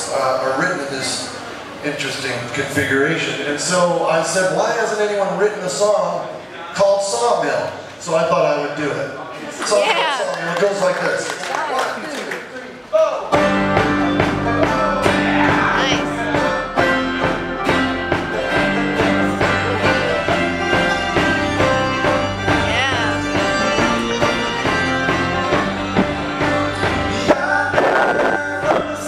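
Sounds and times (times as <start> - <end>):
drums: 13.2 - 29.0
banjo playing: 13.3 - 29.0
fiddle: 17.6 - 28.1
man singing: 26.8 - 29.0.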